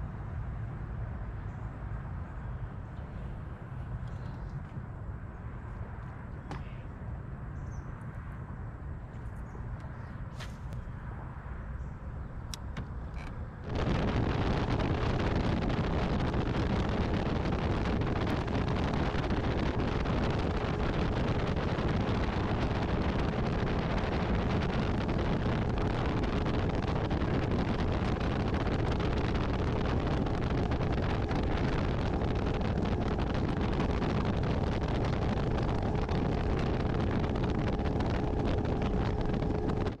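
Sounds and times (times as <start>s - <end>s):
wind buffeting microphone: 12.2s - 40.0s
outboard motor drone: 13.2s - 40.0s.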